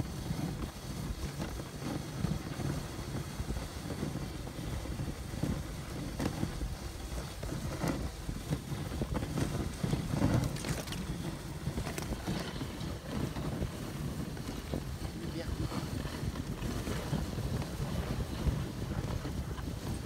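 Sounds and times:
sled runners rushing on snow: 0.0s - 20.0s
wind on microphone: 0.0s - 20.0s.

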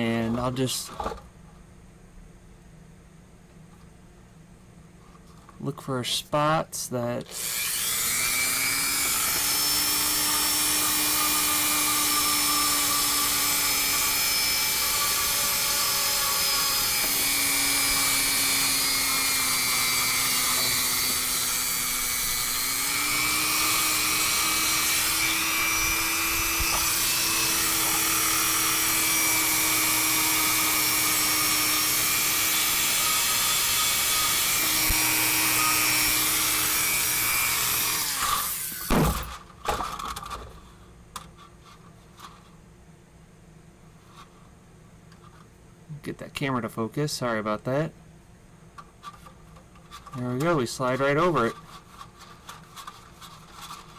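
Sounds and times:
rotary tool whining: 7.3s - 39.4s.

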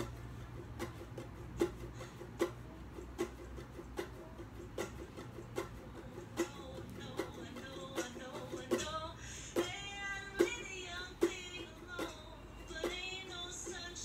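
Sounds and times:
ukulele strumming: 0.0s - 14.0s.

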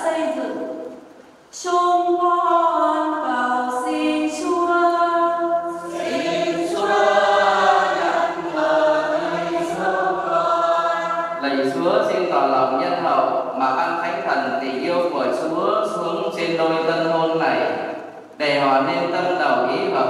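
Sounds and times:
choir singing a slow hymn: 3.7s - 11.7s.

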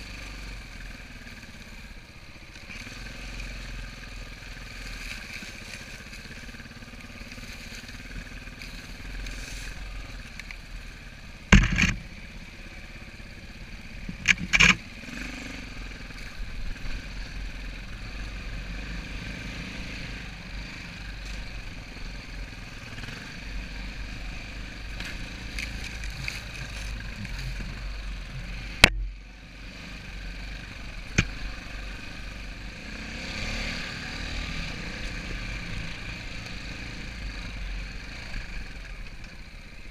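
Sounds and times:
dirt bike engine running: 0.0s - 39.9s
sharp knocks and clatters: 11.5s - 12.0s.

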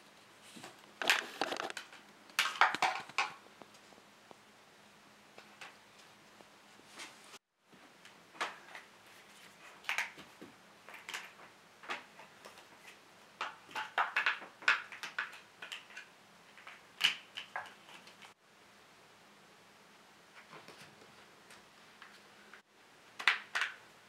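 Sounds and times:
plastic track pieces clattering: 13.4s - 18.3s.

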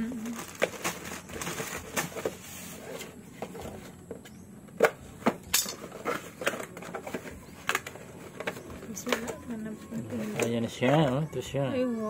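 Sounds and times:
cardboard box rustling and scraping: 0.1s - 4.4s, 5.8s - 10.6s.

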